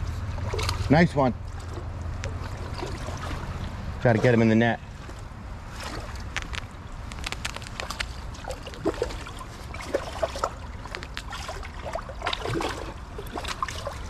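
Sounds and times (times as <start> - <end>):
running stream water: 0.0 - 14.0
fish splashing in water: 0.3 - 4.4, 5.0 - 14.0.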